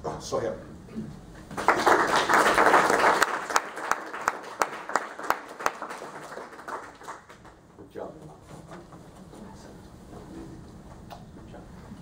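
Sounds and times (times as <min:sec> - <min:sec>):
audience applauding: 0:01.5 - 0:07.6.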